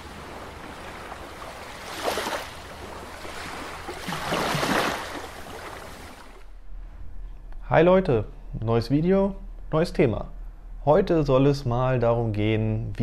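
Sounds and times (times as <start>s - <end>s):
rushing water like surf: 0.0s - 6.5s.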